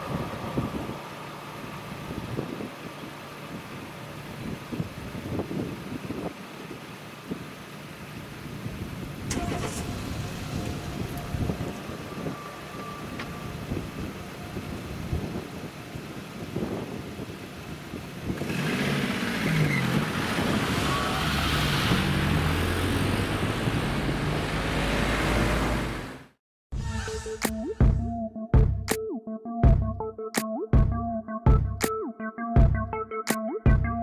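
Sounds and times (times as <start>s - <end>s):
car engines pulling away: 0.0s - 26.4s
tyres on road: 0.0s - 26.4s.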